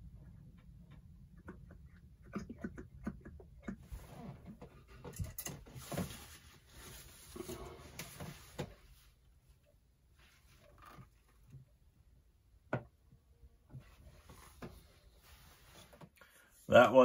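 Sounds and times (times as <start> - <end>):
oil glugging from a bottle: 1.1 - 4.7
paper towel rustling: 5.6 - 9.2, 13.9 - 16.1.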